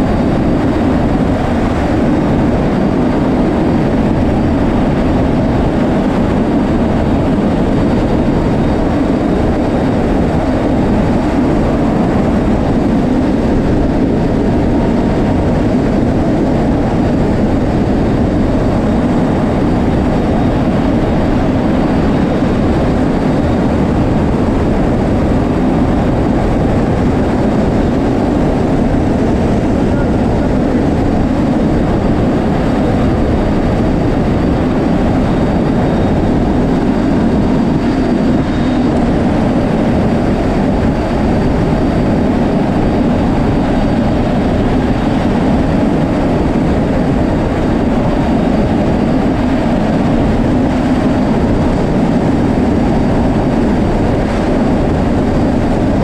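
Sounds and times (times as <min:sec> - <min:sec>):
rushing wind: 0:00.0 - 0:56.0
turboprop engines droning: 0:00.0 - 0:56.0.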